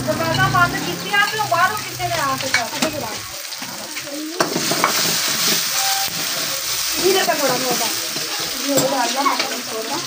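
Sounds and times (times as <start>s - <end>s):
noodles sizzling in a wok: 0.0s - 10.0s
metal spoon clacking on pan: 2.4s - 9.7s.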